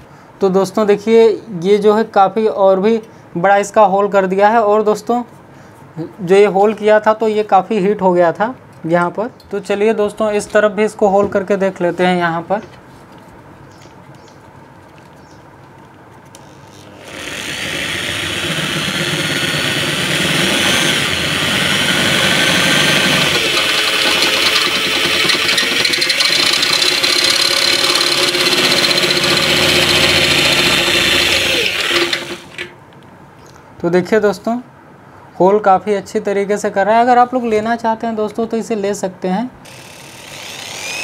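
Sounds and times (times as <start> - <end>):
electric drill whining: 16.4 - 32.7, 39.7 - 41.0
drill bit scraping metal: 16.6 - 32.7.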